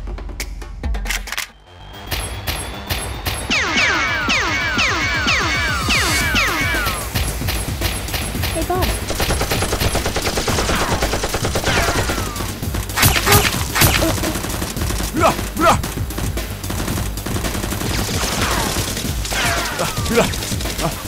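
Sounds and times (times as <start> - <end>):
automatic gunfire: 9.0 - 15.1
single gunshots: 9.4 - 14.2.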